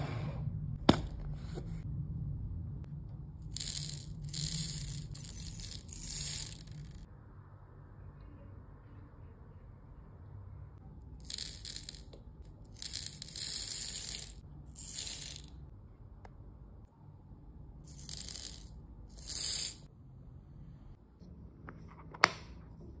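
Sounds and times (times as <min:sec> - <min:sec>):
beads rattling in a test tube: 0:03.4 - 0:07.1, 0:11.2 - 0:15.5, 0:17.9 - 0:19.9.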